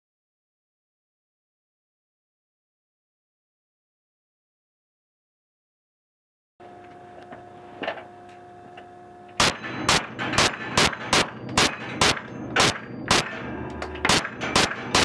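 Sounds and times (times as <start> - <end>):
faint steady hum: 6.6 - 14.4
pistol shots indoors: 9.4 - 15.0.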